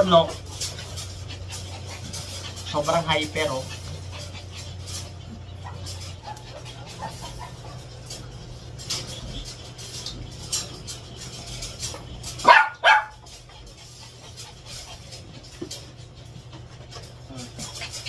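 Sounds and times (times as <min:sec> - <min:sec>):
low steady hum: 0:00.0 - 0:18.0
small dog barking: 0:12.4 - 0:13.2
dog yipping: 0:12.4 - 0:13.3.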